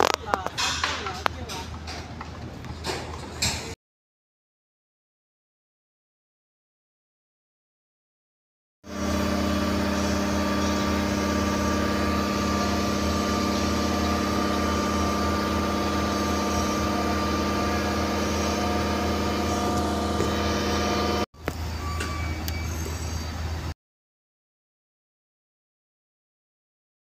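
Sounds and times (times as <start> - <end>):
large engine rumbling: 8.9 - 23.7.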